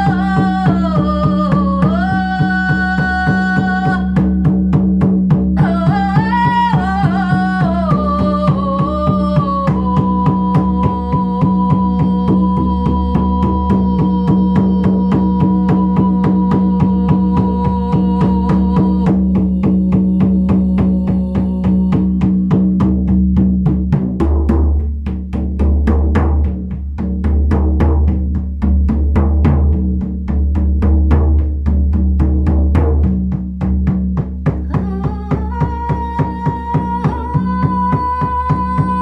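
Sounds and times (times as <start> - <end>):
woman singing long notes: 0.0 - 4.4, 5.6 - 22.8, 34.6 - 39.0
frame drum booming strokes: 0.0 - 39.0.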